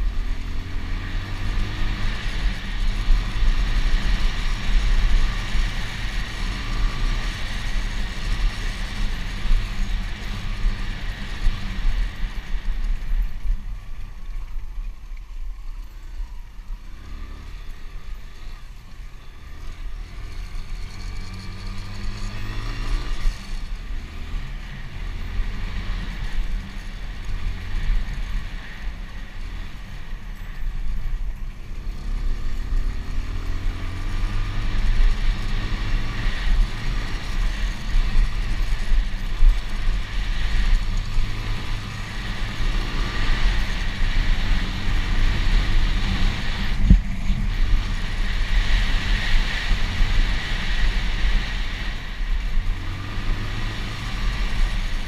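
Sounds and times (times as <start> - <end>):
wind and road noise rumble: 0.0 - 55.0.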